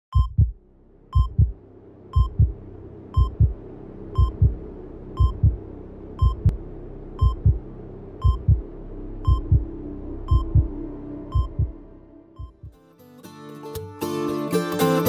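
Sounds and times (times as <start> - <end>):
heart monitor beeps: 0.1 - 0.6, 1.2 - 1.5, 2.2 - 2.5, 3.2 - 3.5, 4.2 - 4.6, 5.2 - 5.6, 6.2 - 6.5, 7.2 - 7.6, 8.2 - 8.6, 9.2 - 9.7, 10.3 - 10.7, 11.3 - 11.7, 12.4 - 12.7
heartbeat thumps: 0.1 - 0.6, 1.2 - 1.6, 2.2 - 2.6, 3.2 - 6.6, 7.2 - 9.7, 10.3 - 11.8, 12.4 - 12.8
low steady drone: 0.5 - 12.7.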